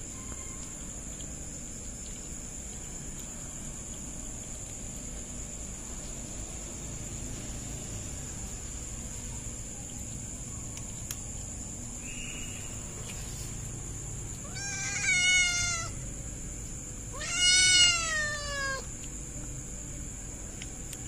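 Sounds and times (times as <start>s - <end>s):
kitten meowing: 14.4s - 16.0s, 17.1s - 18.9s.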